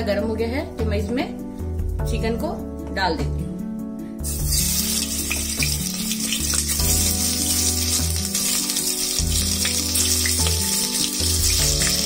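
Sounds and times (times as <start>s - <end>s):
background music with low notes: 0.0s - 12.0s
chicken sizzling in hot oil: 4.2s - 12.0s.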